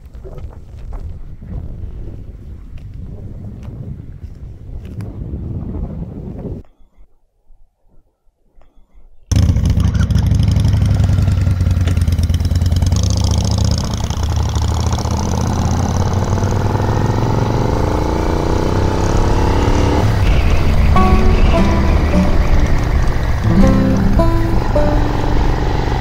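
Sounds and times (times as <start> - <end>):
gear change: 9.3 - 26.0
motorcycle engine under load: 9.3 - 26.0.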